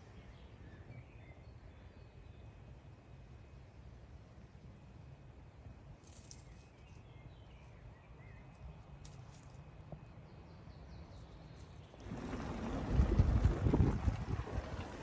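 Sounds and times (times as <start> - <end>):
wind rumbling on microphone: 11.8 - 15.0.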